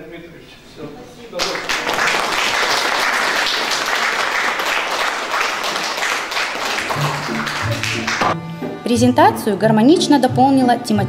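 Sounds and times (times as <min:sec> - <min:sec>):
audience applauding: 0:01.4 - 0:08.4
background music: 0:06.6 - 0:11.0.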